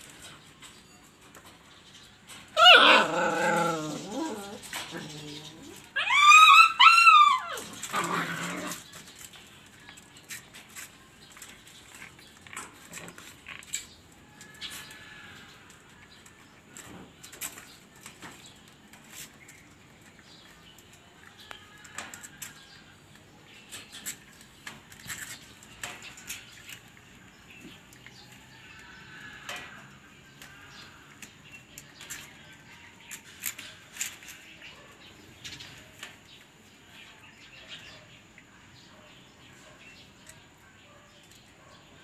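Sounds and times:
puppy whimper: 2.6 - 8.2
puppy whining: 2.6 - 8.8.

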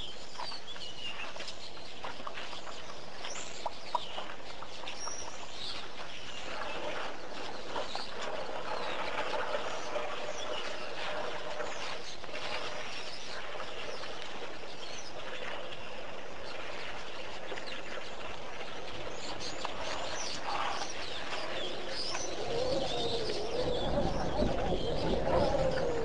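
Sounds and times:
birds chirping: 0.0 - 26.0
dove cooing: 21.6 - 26.0.

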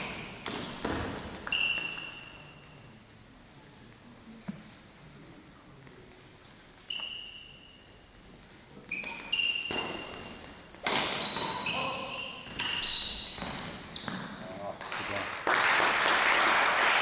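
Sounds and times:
racket hitting shuttlecock: 0.0 - 2.2, 9.0 - 14.3
shoes squeaking on court floor: 0.0 - 3.0, 6.8 - 8.2, 8.8 - 14.6.

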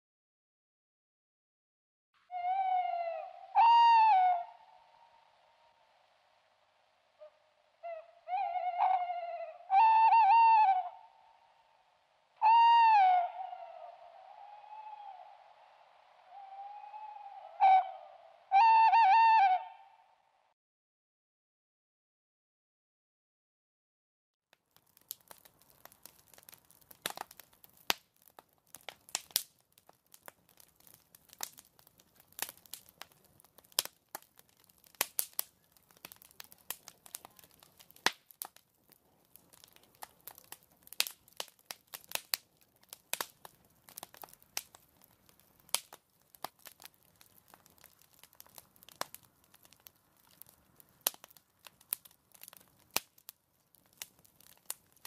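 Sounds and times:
fire crackling: 13.2 - 18.3, 24.6 - 55.0.

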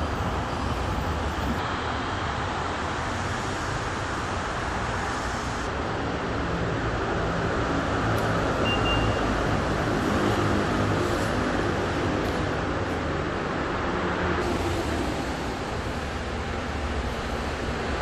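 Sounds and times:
faint high beep: 8.6 - 9.3.

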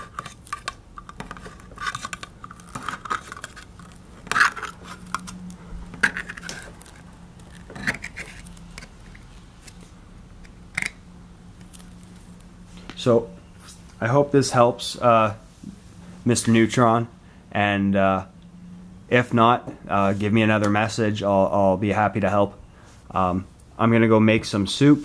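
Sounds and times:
can opener cutting metal can: 0.0 - 9.8.

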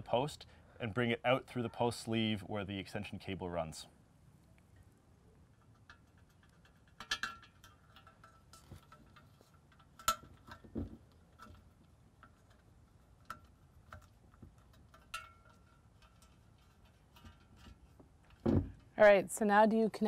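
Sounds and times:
metallic clicks and clinks: 5.6 - 17.7.

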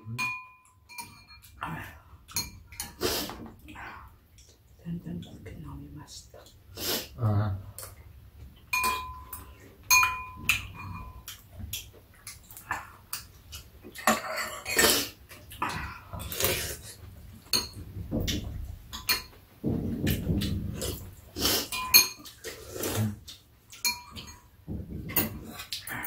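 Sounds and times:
metal spoons clinking on bowls: 0.0 - 1.6, 2.3 - 3.0, 8.7 - 11.4, 13.9 - 14.9, 17.5 - 19.4, 21.7 - 22.5, 23.7 - 24.5
slurping and chewing soup: 10.5 - 17.7, 20.1 - 26.0.

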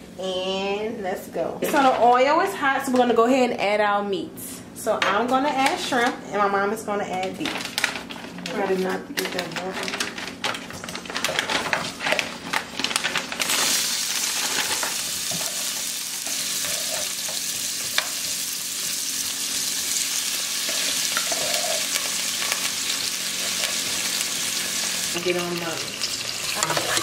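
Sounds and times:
spoons stirring and scraping pots: 7.3 - 27.0
food pieces clattering into pots: 7.4 - 8.6, 9.2 - 27.0
meat sizzling in hot oil: 13.3 - 27.0.

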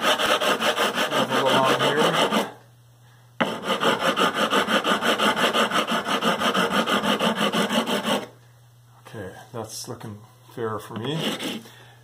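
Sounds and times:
sanding block scraping metal frets: 0.0 - 2.5, 3.4 - 8.2.

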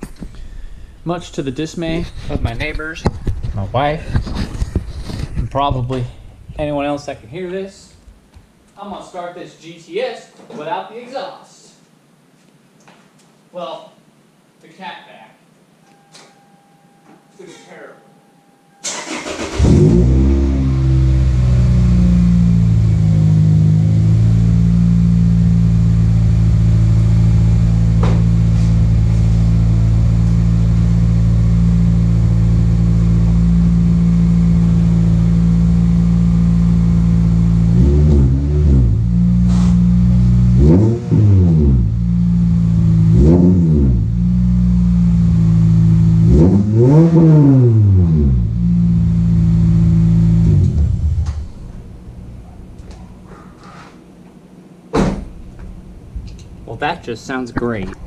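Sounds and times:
car engine idling and revving: 19.1 - 52.4.

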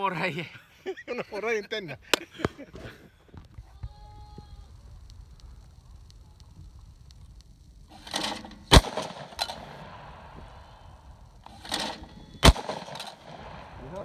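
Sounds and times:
shotgun shots: 7.9 - 14.0.

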